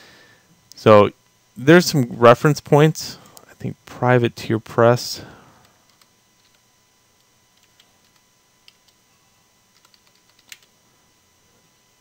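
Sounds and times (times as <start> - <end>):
typing on computer keyboard: 9.8 - 10.7.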